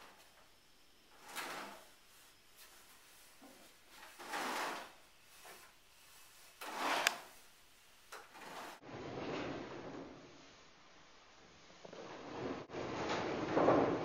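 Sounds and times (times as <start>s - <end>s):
cord scraping over wood: 1.1s - 7.5s, 8.1s - 10.2s.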